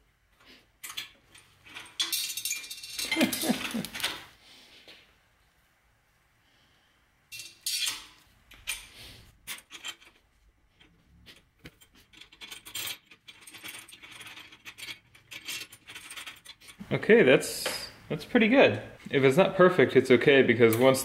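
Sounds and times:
small metal hardware clinking: 0.8s - 4.1s.

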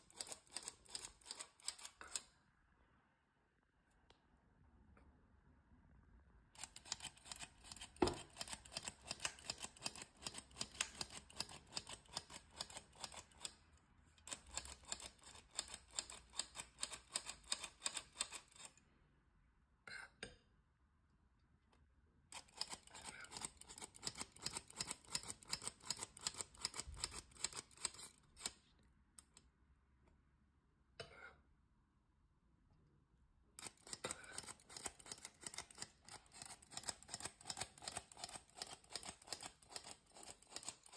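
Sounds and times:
flour sifter ratcheting clicks: 33.6s - 40.9s.

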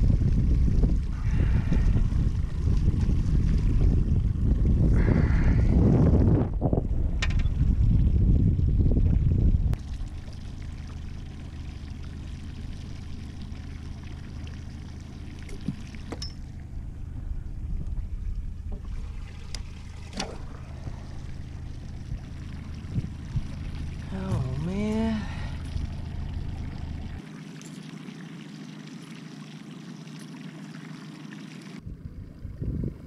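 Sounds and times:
wind buffeting microphone: 0.0s - 11.4s, 15.4s - 27.2s, 31.8s - 33.0s
outboard motor running: 0.0s - 33.0s
water splashing along hull: 0.0s - 33.0s.

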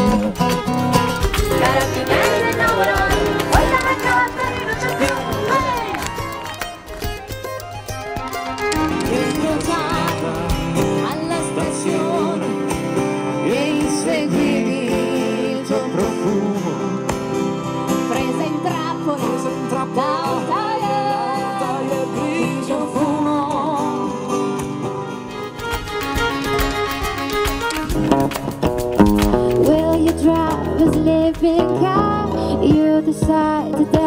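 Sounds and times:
acoustic guitars strumming: 0.0s - 34.0s
person singing: 1.4s - 6.8s, 8.6s - 17.1s, 18.0s - 24.6s, 29.6s - 34.0s.

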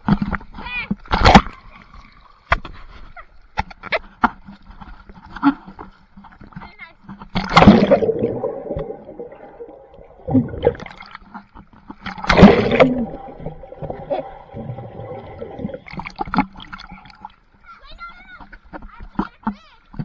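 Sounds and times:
pool water splashing and gurgling: 0.0s - 6.5s, 7.2s - 20.0s
loud splashes: 7.4s - 11.1s, 12.0s - 17.1s.

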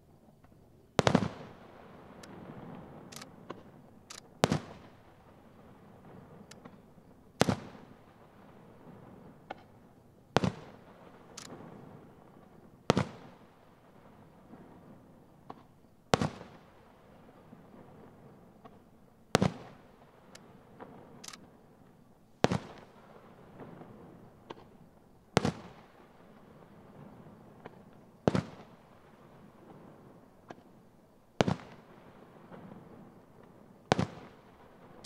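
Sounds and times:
firework bangs: 1.0s - 3.8s, 10.4s - 12.0s, 25.4s - 26.0s, 33.9s - 35.0s.

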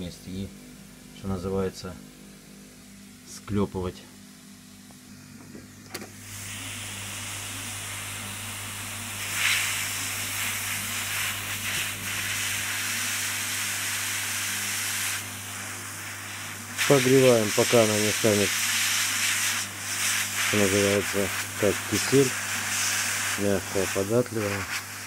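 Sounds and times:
hot-air welding gun hissing: 6.1s - 25.0s.

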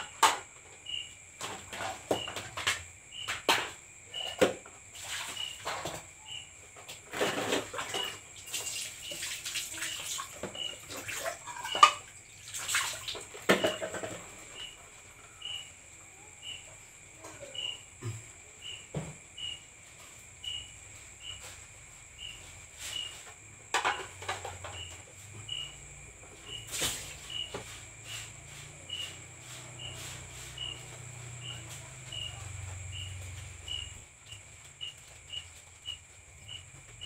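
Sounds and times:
cricket chirping: 0.0s - 37.0s
water splashing: 8.5s - 13.4s
dishes clinking and knocking: 10.4s - 12.1s, 13.4s - 14.7s, 23.7s - 25.0s.

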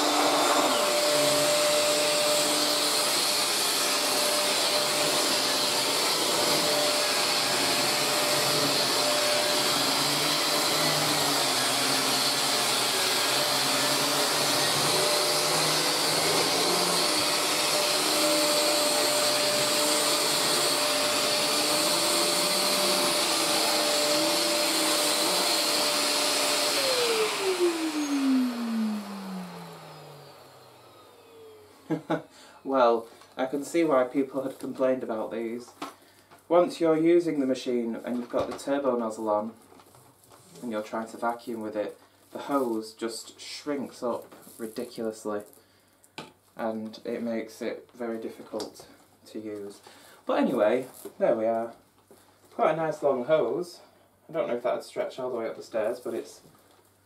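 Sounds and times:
vacuum motor winding down: 0.0s - 32.2s
vacuum cleaner whining: 0.0s - 35.4s.

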